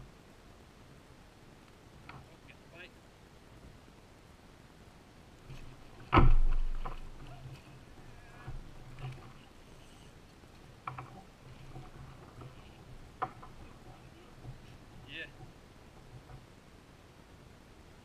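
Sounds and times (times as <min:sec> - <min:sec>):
light knocks and rattles: 0:05.5 - 0:16.6
heavy thump against kayak: 0:06.0 - 0:07.3.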